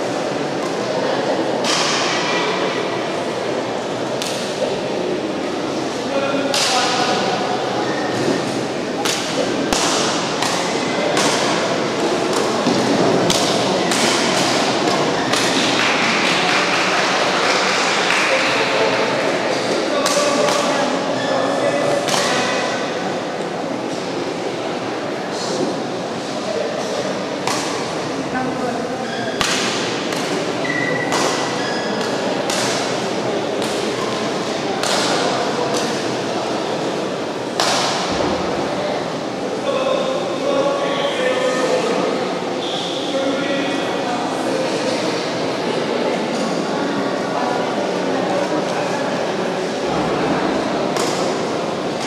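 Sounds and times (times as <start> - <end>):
steady hall noise: 0.0 - 52.0
rackets hitting shuttlecock: 9.0 - 15.9, 27.4 - 28.0, 29.4 - 34.1, 34.8 - 36.1, 37.5 - 38.4, 51.0 - 51.4.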